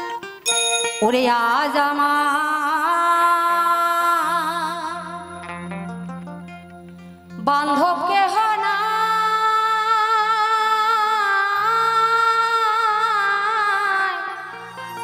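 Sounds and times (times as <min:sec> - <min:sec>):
woman singing with vibrato: 0:01.0 - 0:06.1, 0:07.4 - 0:15.0
low instrumental accompaniment: 0:04.5 - 0:08.5.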